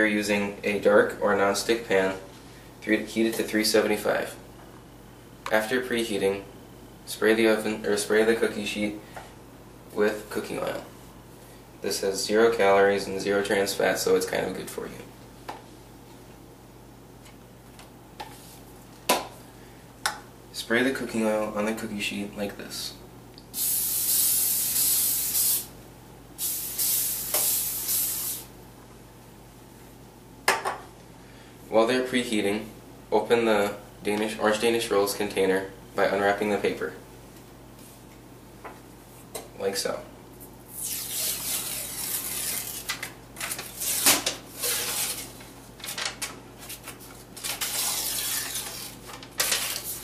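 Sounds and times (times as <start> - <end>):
aerosol spray hissing: 23.6 - 25.7, 26.4 - 28.5
paper wrapping rustling and tearing: 40.8 - 50.0.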